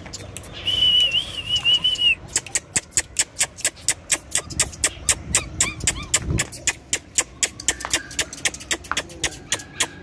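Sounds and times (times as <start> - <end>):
rapid tongue clicks: 0.0 - 0.6, 1.9 - 10.0
person whistling: 0.6 - 2.2.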